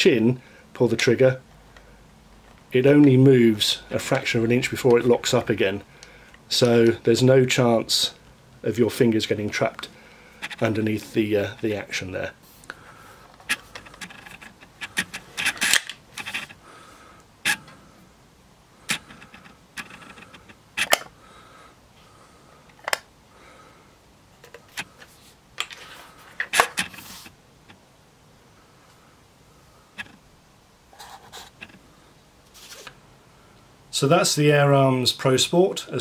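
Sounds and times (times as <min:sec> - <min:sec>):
air rifle mechanism clicks: 0:18.9 - 0:21.1.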